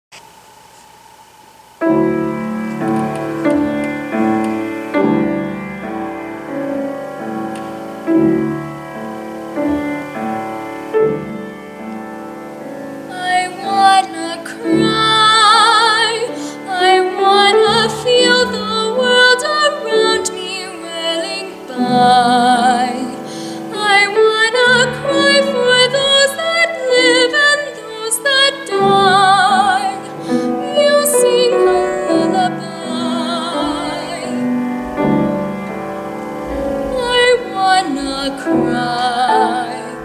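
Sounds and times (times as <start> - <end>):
piano chords and melody: 1.8 - 40.0
girl singing with vibrato: 13.1 - 34.6, 36.8 - 40.0.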